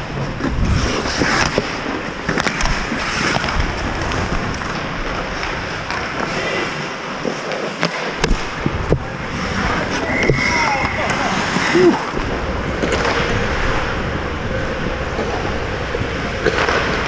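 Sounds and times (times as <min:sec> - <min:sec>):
sticks and puck clacking: 0:00.0 - 0:14.0, 0:14.9 - 0:17.0
skates scraping on ice: 0:00.0 - 0:17.0.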